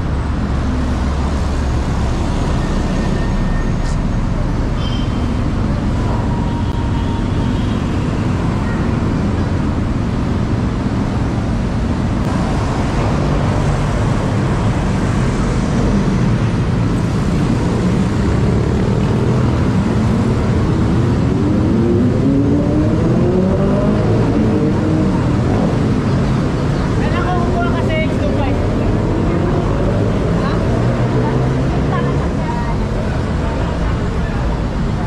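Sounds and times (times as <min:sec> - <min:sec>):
city traffic: 0:00.0 - 0:35.0
vehicle engine accelerating: 0:12.2 - 0:27.0.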